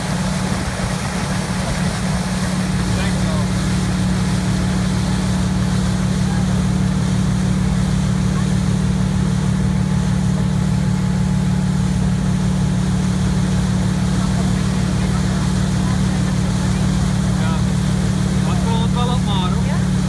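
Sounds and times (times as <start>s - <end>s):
boat engine droning: 0.0s - 20.0s.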